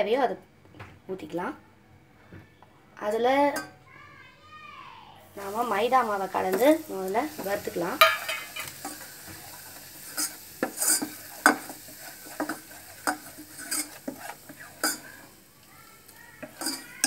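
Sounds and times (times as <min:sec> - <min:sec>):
faint sizzle: 0:01.2 - 0:17.0
spoon scraping metal pot: 0:07.4 - 0:15.3, 0:16.4 - 0:17.0.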